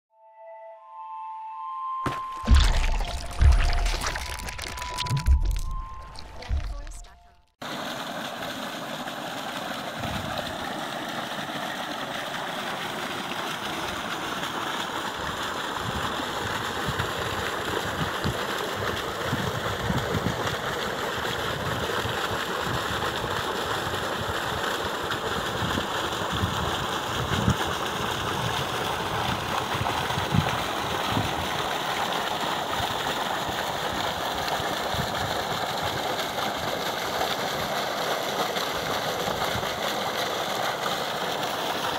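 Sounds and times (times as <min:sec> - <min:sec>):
low thumps: 0:02.1 - 0:07.5
water gushing from pipe: 0:02.1 - 0:41.9.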